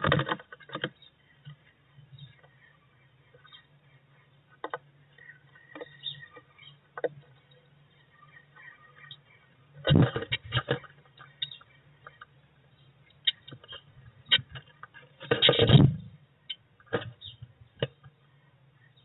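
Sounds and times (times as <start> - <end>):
bird scrabbling flutter: 8.2 - 12.3.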